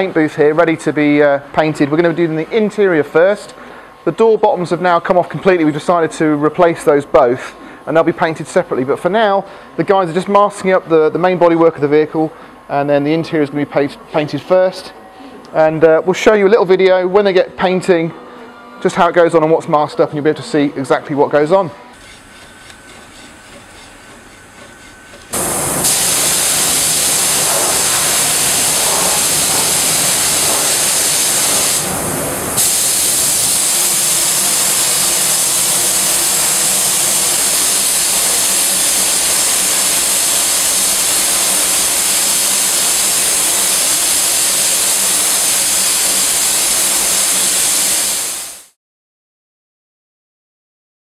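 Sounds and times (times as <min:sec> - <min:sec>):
paint spray gun hissing: 0:22.0 - 0:48.8.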